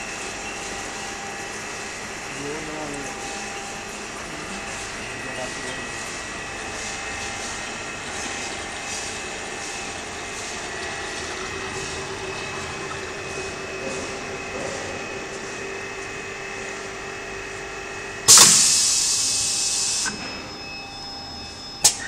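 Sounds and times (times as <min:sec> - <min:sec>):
drum filling machine droning: 0:00.0 - 0:22.0
lower hum: 0:00.0 - 0:22.0.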